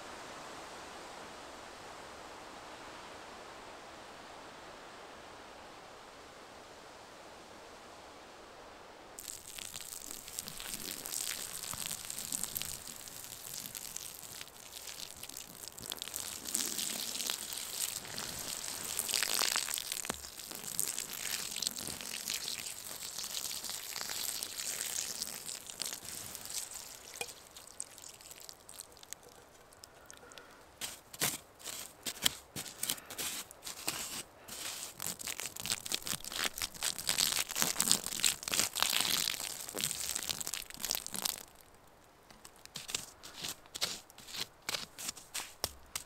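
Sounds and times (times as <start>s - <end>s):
water sizzling on embers: 9.2s - 30.1s, 30.8s - 41.6s, 42.5s - 46.0s
stick scraping in wet ash: 9.2s - 41.4s, 42.4s - 46.0s.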